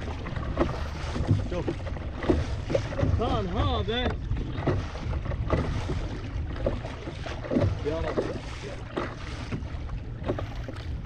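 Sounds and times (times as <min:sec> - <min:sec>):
waves slapping against kayak: 0:00.0 - 0:11.0
wind buffeting microphone: 0:00.0 - 0:11.0.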